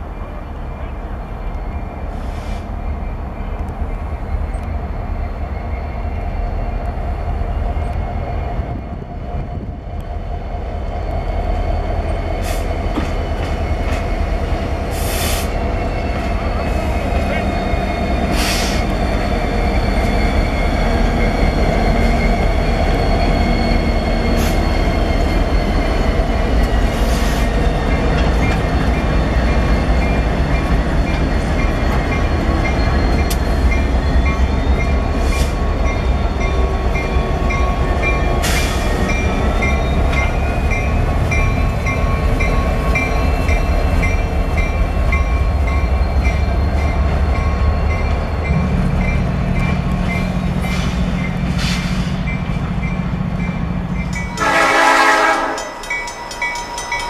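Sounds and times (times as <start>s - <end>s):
freight train rumbling past: 0.0s - 57.0s
wheel squeal: 17.5s - 26.2s.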